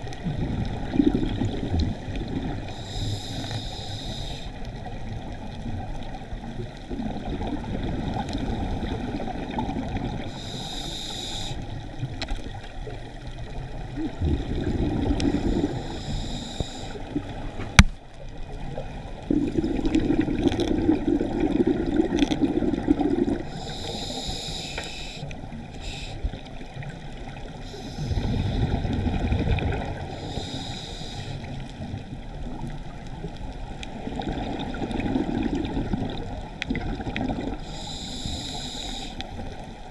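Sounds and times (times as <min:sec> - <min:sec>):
regulator hissing inhales: 0:02.7 - 0:04.6, 0:10.2 - 0:11.8, 0:15.2 - 0:17.1, 0:23.4 - 0:26.4, 0:27.6 - 0:28.5, 0:30.1 - 0:31.6, 0:37.6 - 0:39.5
bubbling exhales: 0:14.0 - 0:16.5, 0:19.2 - 0:24.4, 0:27.7 - 0:30.7.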